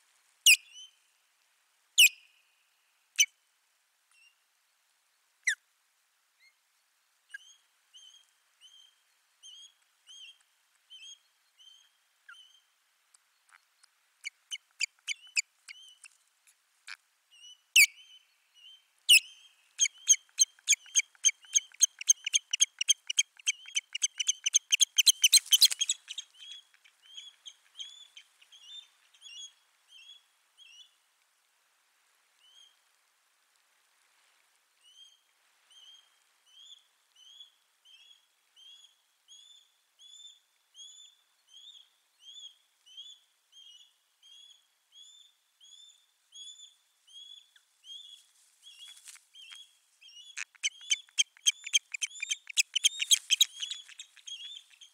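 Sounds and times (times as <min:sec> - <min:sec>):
osprey high piping calls: 0:17.4 - 0:30.2, 0:48.7 - 0:54.9.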